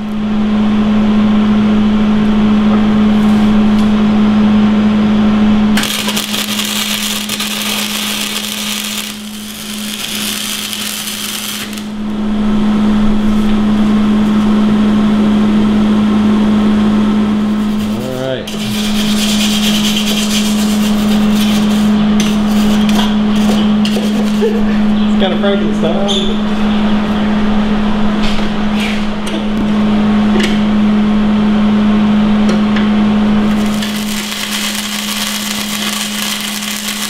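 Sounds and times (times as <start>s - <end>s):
low hum: 0.0s - 21.3s
welder arc crackling and hissing: 5.8s - 12.1s, 33.5s - 37.0s.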